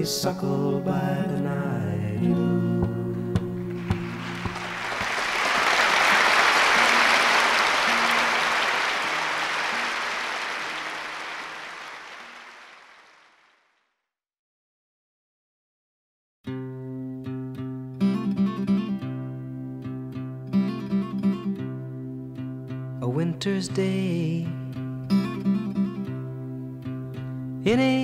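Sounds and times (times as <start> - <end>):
audience applause: 3.7 - 13.7.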